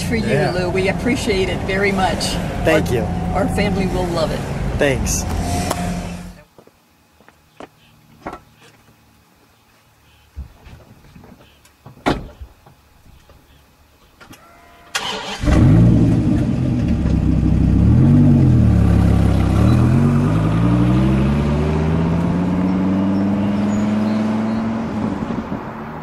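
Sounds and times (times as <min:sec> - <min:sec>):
car accelerating away: 0:00.0 - 0:06.4, 0:15.0 - 0:26.0
car engine starting and revving: 0:00.0 - 0:06.4, 0:14.9 - 0:26.0.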